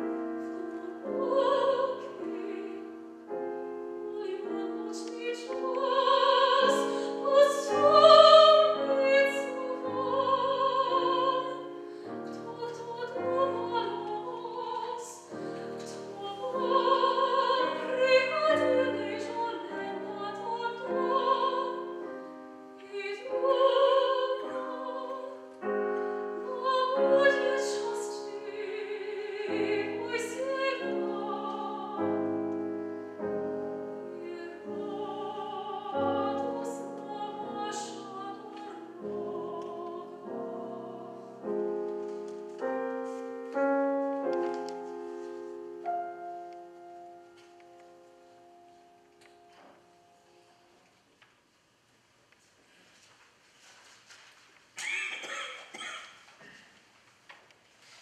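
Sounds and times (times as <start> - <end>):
piano: 0.0 - 56.7
woman singing operatically: 0.5 - 2.9, 4.1 - 11.7, 12.5 - 22.0, 22.8 - 25.4, 26.4 - 32.2, 34.1 - 41.2.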